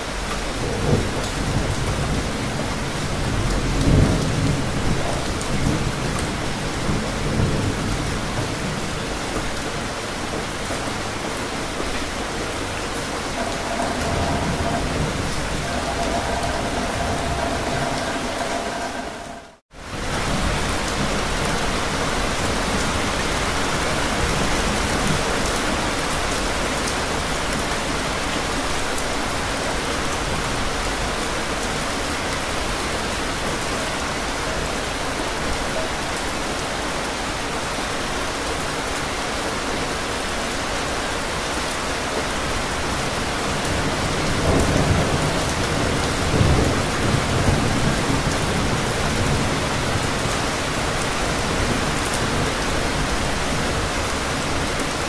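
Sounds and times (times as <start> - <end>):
steady rain falling: 0.0 - 55.0
low thunder rumbles: 13.3 - 20.4.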